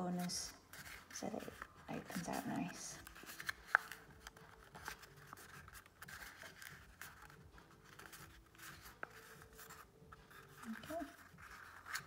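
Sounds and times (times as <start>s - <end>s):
origami paper crinkling: 0.2s - 12.0s.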